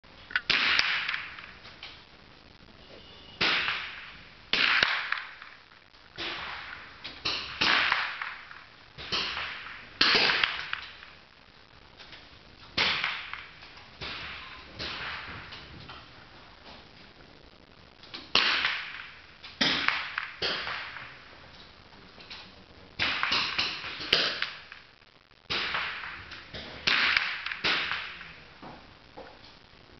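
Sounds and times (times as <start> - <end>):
rifle shots cracking: 0.4 - 1.5, 3.4 - 5.6, 6.2 - 11.1, 18.3 - 21.2, 25.5 - 28.2.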